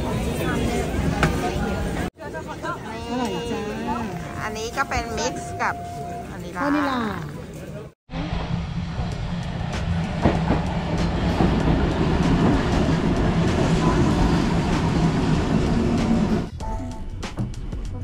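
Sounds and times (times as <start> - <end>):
tram wheels rumbling on rails: 8.1 - 16.5.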